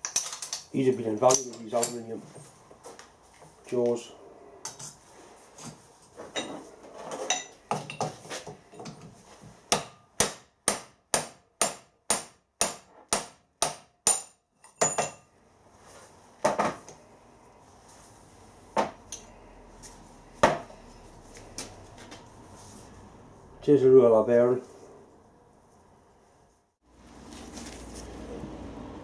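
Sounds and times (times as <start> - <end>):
metal parts clattering: 0.0 - 2.0.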